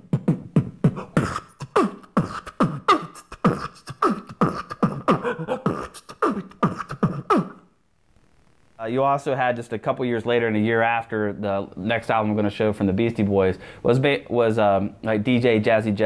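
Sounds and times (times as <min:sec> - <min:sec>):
man beatboxing: 0:00.0 - 0:07.6.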